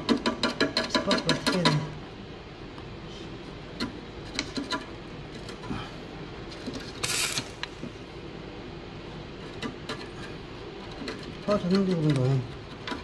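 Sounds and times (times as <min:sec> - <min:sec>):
welding arc burst: 0:07.0 - 0:07.8
welding electrode scratching and clicking: 0:07.0 - 0:07.8.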